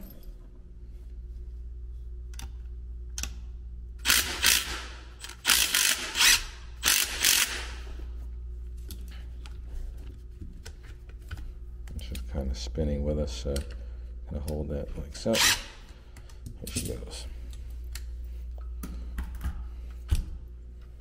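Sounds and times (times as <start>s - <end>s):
steady low hum: 0.0s - 21.0s
cordless driver whirring: 4.0s - 7.8s.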